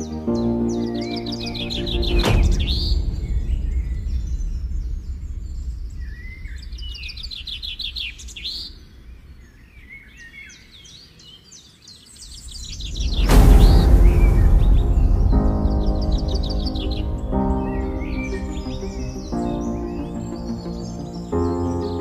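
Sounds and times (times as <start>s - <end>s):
songbirds singing: 0.0s - 22.0s
low background rumble: 1.8s - 9.8s, 12.5s - 22.0s.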